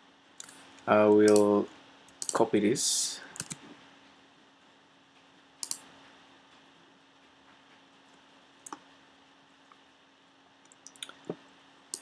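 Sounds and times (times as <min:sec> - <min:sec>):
faint steady hum: 0:00.0 - 0:12.0
computer mouse clicks: 0:01.2 - 0:01.5, 0:02.1 - 0:02.4, 0:03.4 - 0:03.6, 0:05.6 - 0:05.9, 0:08.6 - 0:08.8, 0:10.6 - 0:12.0.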